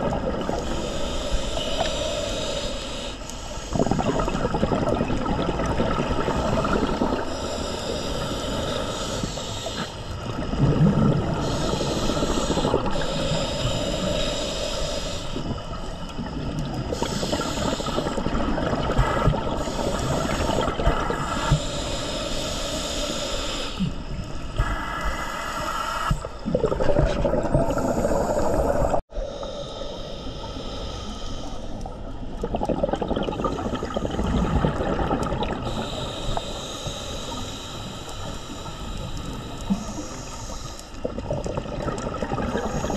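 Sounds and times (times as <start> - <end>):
exhaled bubbles rumbling: 0.0 - 1.0, 3.6 - 9.0, 9.7 - 13.9, 15.4 - 21.7, 26.1 - 29.0, 31.7 - 36.5, 38.2 - 42.9
regulator inhale hissing: 0.3 - 5.2, 5.9 - 10.6, 11.2 - 26.4, 27.5 - 32.2, 33.6 - 41.2, 42.3 - 42.9.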